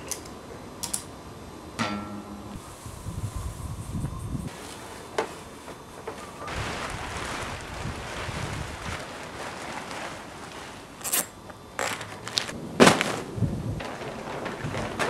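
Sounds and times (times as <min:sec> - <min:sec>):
plastic tarp crinkling: 0:06.1 - 0:15.0.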